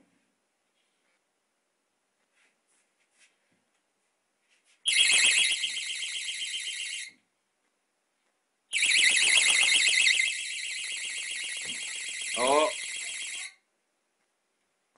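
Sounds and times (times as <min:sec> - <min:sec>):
warbling electronic alarm siren: 0:04.9 - 0:07.1, 0:08.7 - 0:13.6.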